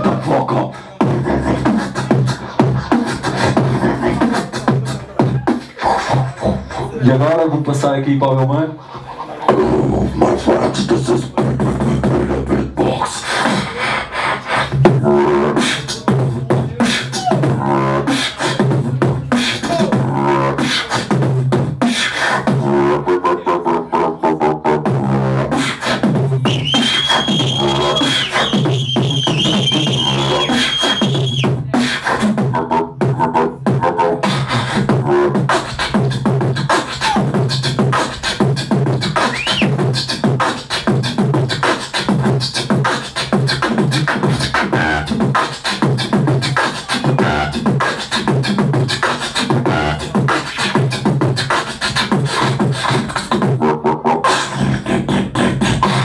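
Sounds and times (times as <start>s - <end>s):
person beatboxing: 0.0s - 56.0s.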